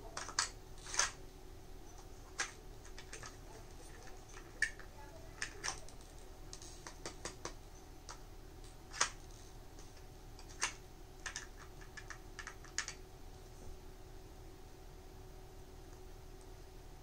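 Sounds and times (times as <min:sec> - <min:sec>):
plastic pieces clicking and knocking: 0:00.2 - 0:01.2, 0:02.0 - 0:13.0.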